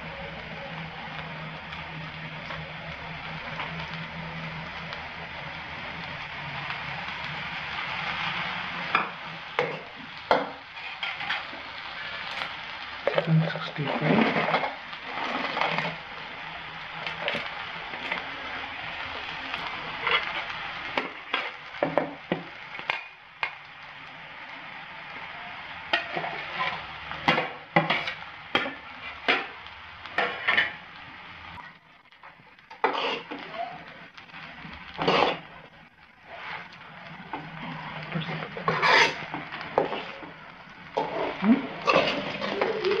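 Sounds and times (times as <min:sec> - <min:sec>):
noodles sizzling in a frying pan: 0:00.0 - 0:43.0
steel spoon clinking and scraping pan: 0:10.8 - 0:11.5, 0:38.6 - 0:40.1.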